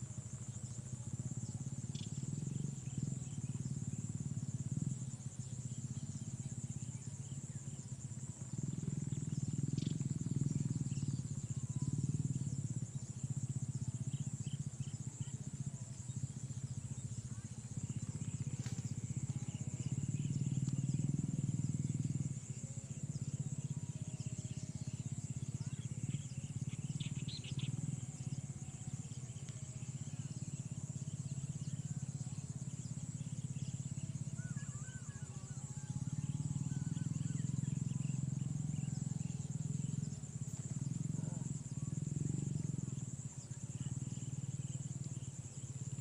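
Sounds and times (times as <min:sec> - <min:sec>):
high insect drone: 0:00.0 - 0:46.0.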